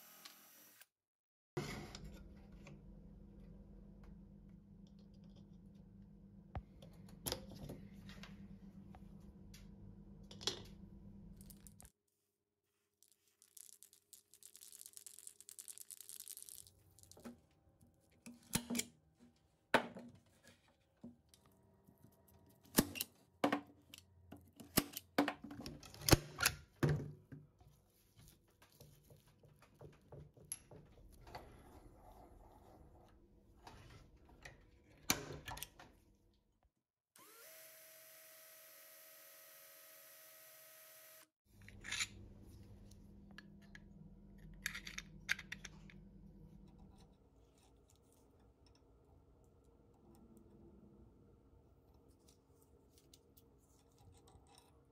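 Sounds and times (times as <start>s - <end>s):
electric drill boring into metal: 0.0s - 0.9s, 37.2s - 41.3s.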